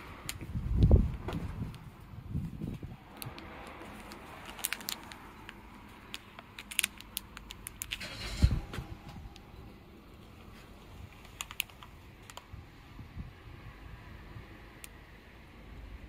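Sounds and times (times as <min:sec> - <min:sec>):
plastic wrapper crinkling: 0:03.1 - 0:08.1, 0:10.2 - 0:12.5.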